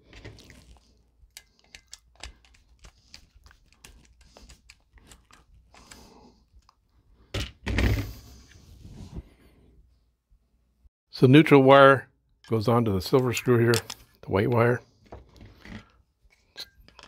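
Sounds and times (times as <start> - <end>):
screwdriver clicks and scrapes: 1.3 - 6.7, 16.4 - 17.0.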